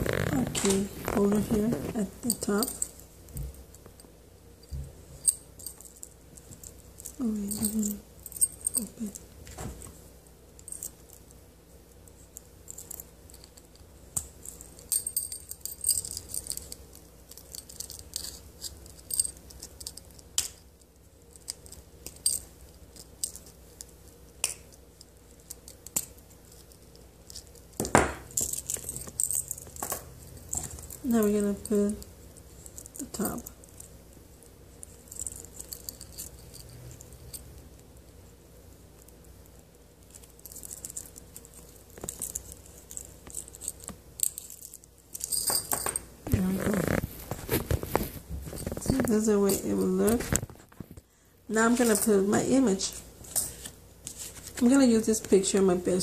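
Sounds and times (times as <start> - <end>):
key ring metal clicks and jingles: 4.6 - 9.2, 14.5 - 20.2.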